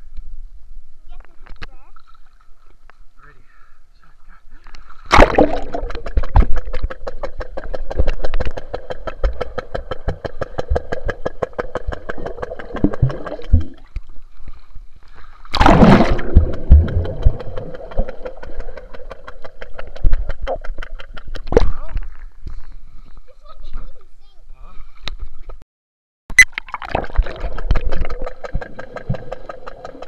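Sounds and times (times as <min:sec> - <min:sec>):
rush of water and bubbles: 0:04.9 - 0:14.5, 0:15.4 - 0:22.2, 0:26.3 - 0:30.0.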